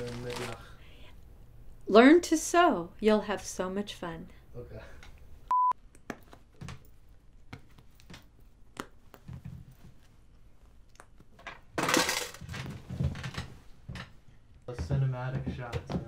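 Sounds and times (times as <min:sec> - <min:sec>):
cloth rustling: 0:00.0 - 0:00.6.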